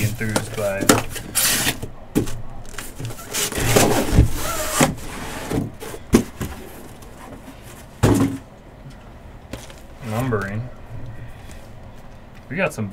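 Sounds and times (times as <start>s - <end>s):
cardboard boxes scraping: 0.0s - 8.4s.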